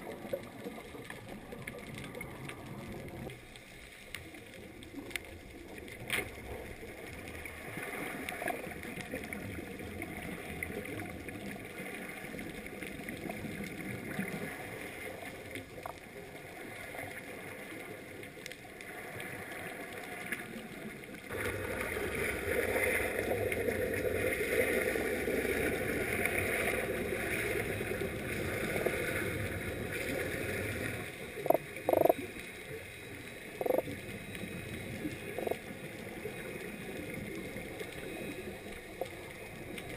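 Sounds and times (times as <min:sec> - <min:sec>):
underwater rushing noise: 0:00.0 - 0:39.9.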